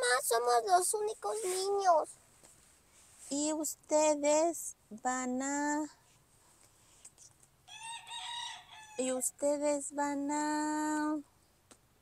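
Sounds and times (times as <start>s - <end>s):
rooster crowing: 7.7s - 9.2s.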